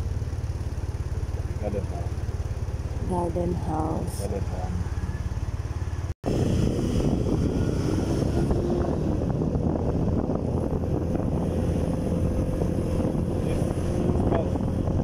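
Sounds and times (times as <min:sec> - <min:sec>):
motorcycle engine rumble: 0:00.0 - 0:15.0
wind buffeting microphone: 0:06.2 - 0:15.0.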